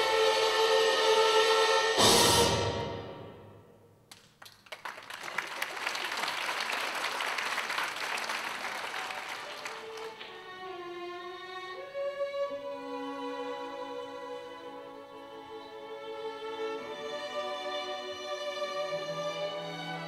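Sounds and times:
slow violin and strings: 0.0 - 2.2, 9.5 - 20.0
audience applause: 4.2 - 10.4.

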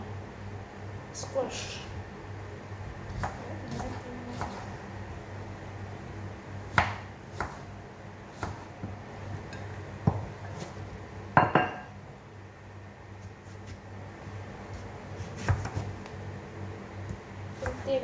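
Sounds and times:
knife cutting squash: 3.1 - 4.7, 14.8 - 15.9.

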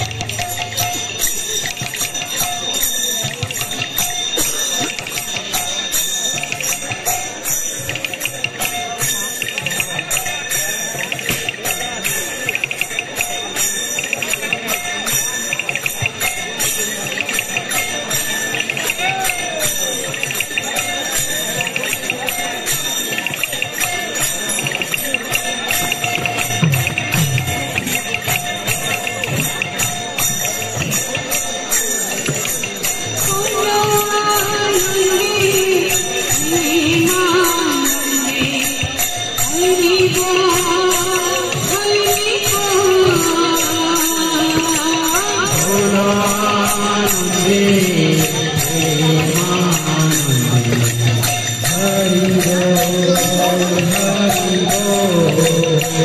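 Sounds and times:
hand cymbals chiming: 0.0 - 56.0
woman singing into a microphone: 33.2 - 50.4.

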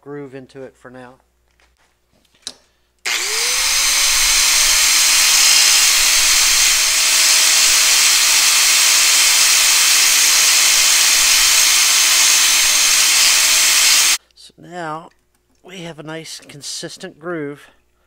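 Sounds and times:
angle grinder grinding steel: 3.1 - 14.2.

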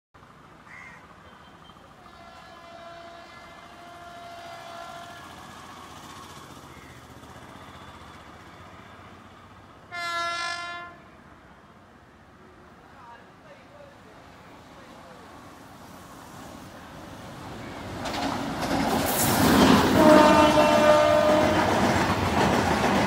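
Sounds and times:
train running noise: 1.1 - 11.6, 14.2 - 23.0
locomotive horn blast: 2.0 - 5.5, 9.9 - 11.1, 19.8 - 21.9.

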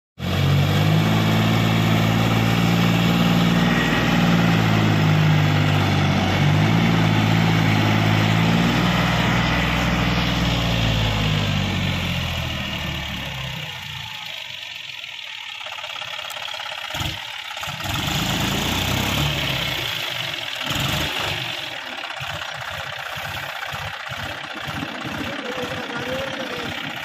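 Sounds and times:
tractor diesel engine running hard: 0.2 - 27.0.

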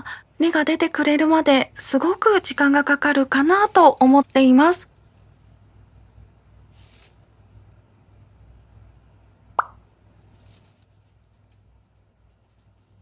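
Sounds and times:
faint steady hum: 0.0 - 13.0
short plop-like pop: 9.6 - 9.8.

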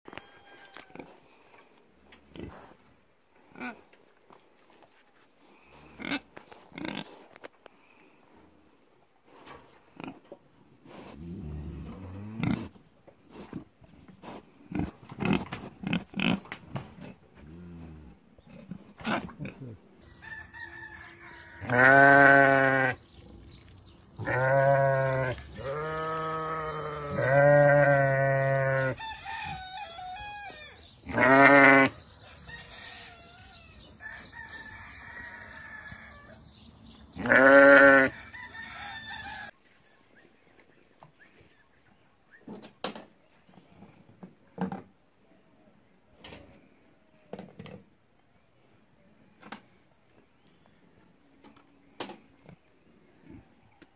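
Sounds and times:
sheep bleating: 21.6 - 23.0, 24.2 - 29.0, 31.1 - 31.9, 37.2 - 38.1.

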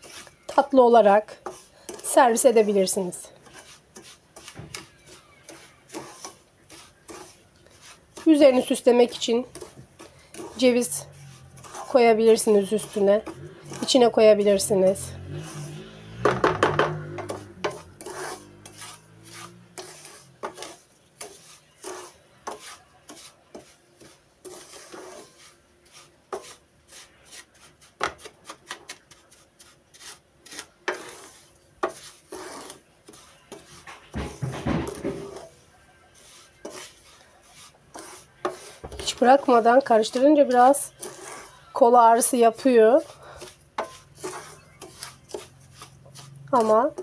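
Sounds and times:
wooden spatula scraping pan: 0.0 - 47.0.

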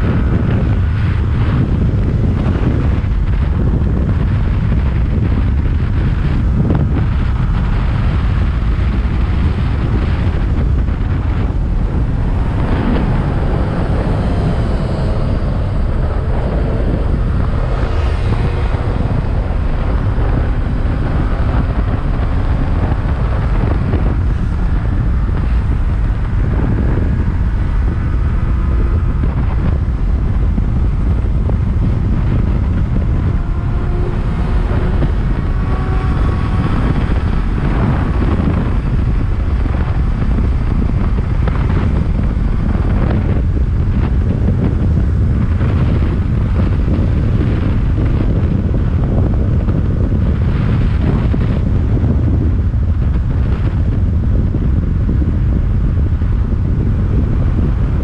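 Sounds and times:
motorcycle engine running: 0.0 - 58.0
wind rushing over microphone: 0.0 - 58.0.

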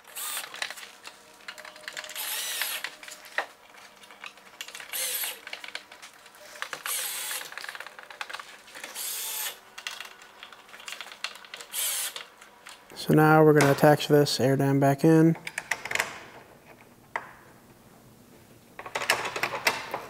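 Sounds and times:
cordless drill motor whine: 0.0 - 0.8, 1.5 - 3.5, 4.8 - 5.5, 6.4 - 7.8, 8.8 - 9.6, 11.6 - 12.3.

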